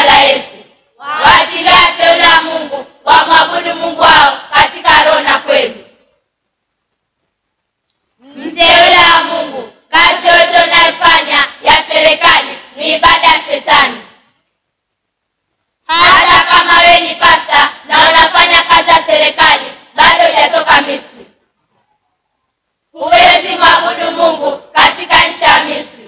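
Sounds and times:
children singing together: 0.0 - 5.9, 8.2 - 14.2, 15.9 - 21.3, 23.0 - 26.0.

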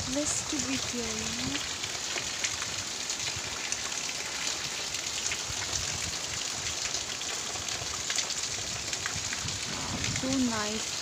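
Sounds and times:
heavy rain on foliage: 0.0 - 11.0.

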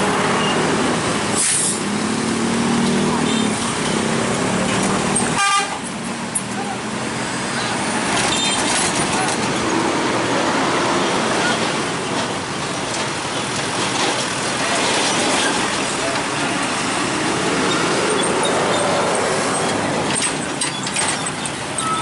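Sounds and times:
heavy trucks driving slowly: 0.0 - 22.0
motorcycles passing: 1.8 - 5.4, 14.1 - 20.2.

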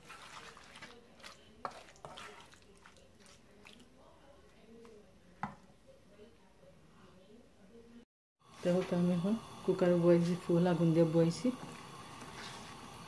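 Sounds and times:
spoon squishing and scraping paste: 0.0 - 4.0.

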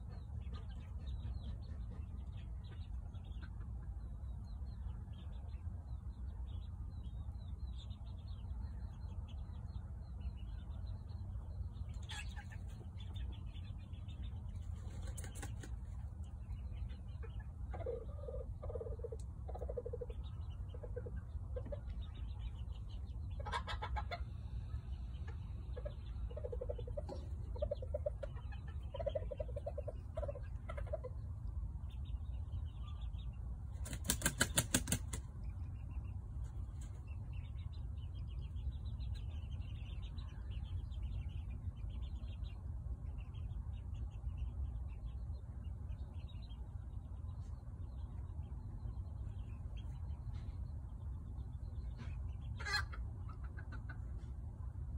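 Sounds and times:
chickens clucking: 0.0 - 54.9
wings flapping: 14.8 - 15.8, 33.8 - 35.2.

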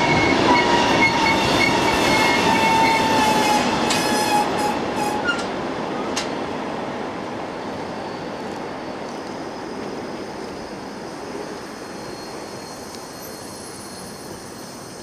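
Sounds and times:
freight train rolling on rails: 0.0 - 15.0
high ringing wheel squeal: 9.4 - 15.0.

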